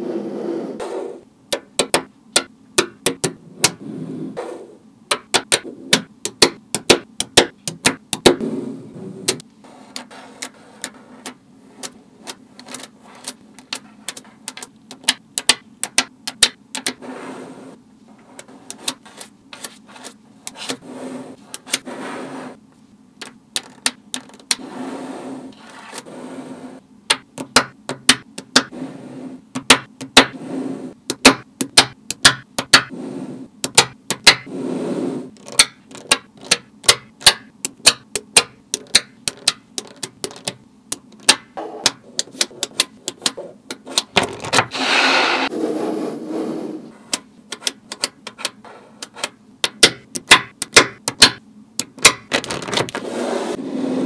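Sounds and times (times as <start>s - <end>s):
magnetic balls clicking together: 5.1s - 8.4s, 10.0s - 17.0s, 23.2s - 24.6s, 31.1s - 32.9s, 33.6s - 34.5s, 35.4s - 44.6s, 47.1s - 53.0s
magnetic balls rattling: 23.2s - 24.6s, 35.4s - 44.7s.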